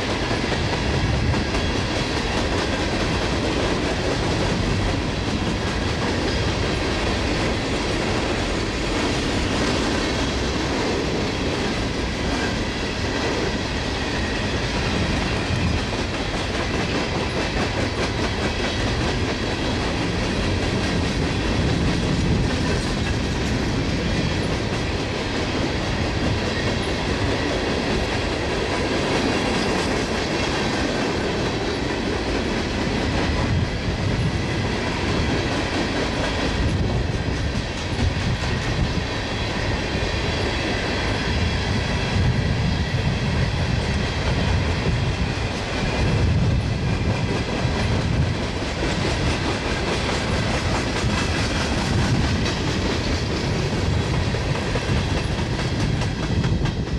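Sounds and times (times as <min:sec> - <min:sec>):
train wheels rumbling on rail: 0:00.0 - 0:56.9.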